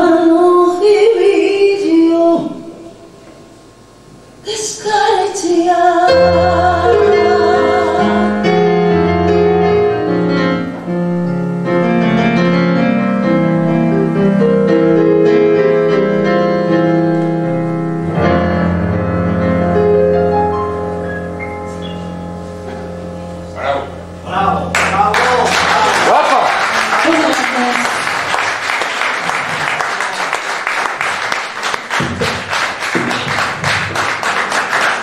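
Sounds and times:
woman singing: 0.0s - 2.8s, 4.4s - 8.6s
electronic keyboard chords: 6.1s - 26.2s
low bass notes: 16.2s - 26.0s.

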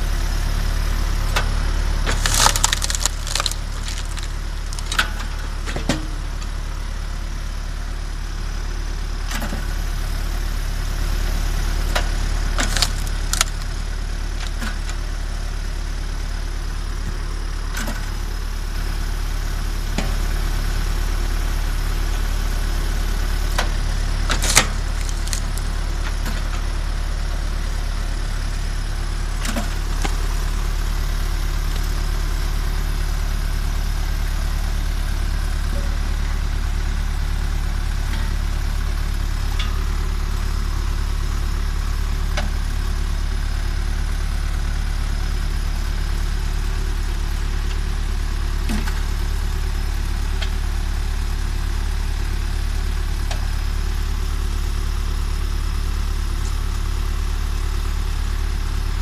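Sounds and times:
tractor diesel engine running: 0.0s - 59.0s
split wood falling: 1.3s - 6.2s, 12.0s - 13.7s, 23.6s - 26.6s
log splitting cracks: 1.3s - 6.5s, 11.9s - 15.0s, 23.5s - 26.7s, 29.3s - 32.7s.

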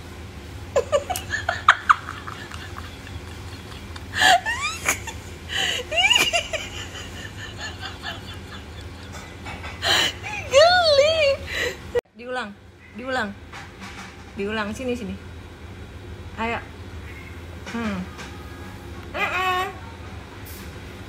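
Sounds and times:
woman giggling and laughing: 0.8s - 12.0s.

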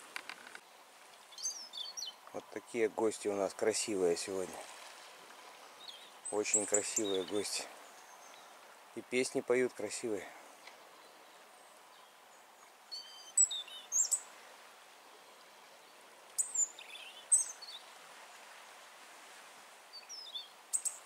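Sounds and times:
faint steady hiss: 0.0s - 21.0s
songbird trilling: 1.3s - 2.2s, 5.8s - 8.5s, 12.9s - 14.3s, 16.4s - 17.8s, 19.9s - 21.0s.

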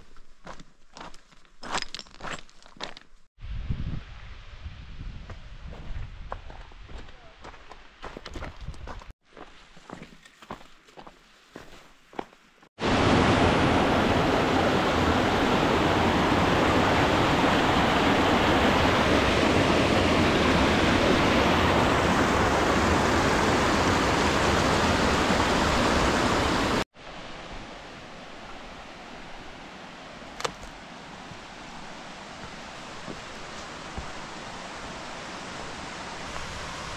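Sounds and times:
creek rushing over rocks: 12.8s - 36.9s.

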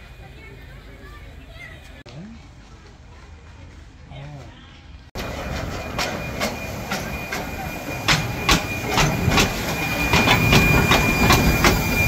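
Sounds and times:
steam locomotive running: 5.2s - 12.0s.

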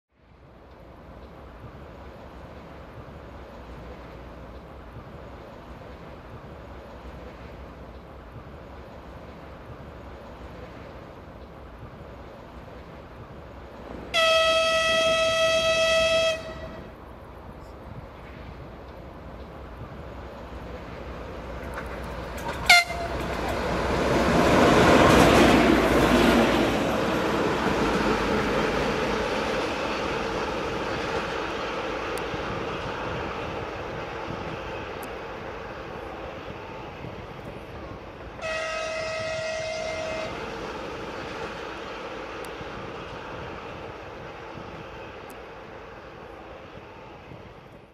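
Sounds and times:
locomotive horn blast: 14.1s - 16.9s, 22.6s - 23.3s, 38.4s - 40.4s
locomotive toot: 14.1s - 16.9s, 22.4s - 23.4s, 38.4s - 40.4s.

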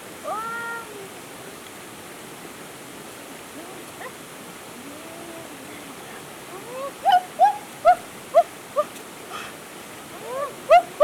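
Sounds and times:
running water hiss: 0.0s - 11.0s.

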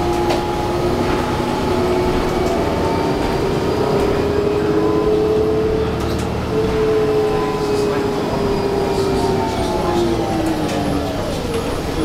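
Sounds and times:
bus engine whine and rumble: 0.0s - 12.0s.

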